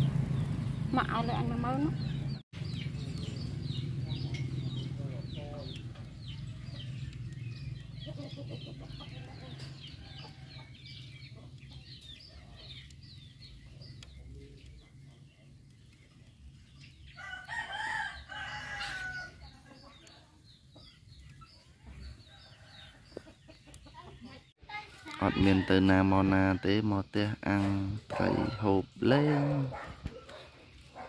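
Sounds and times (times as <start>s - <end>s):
chicks cheeping: 1.7s - 24.5s
rooster crowing: 17.2s - 19.4s.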